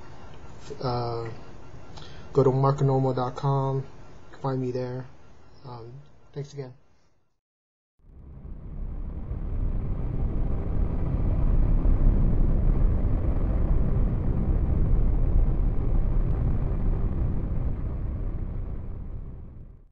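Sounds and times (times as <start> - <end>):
deep rumbling noise: 8.0 - 19.9.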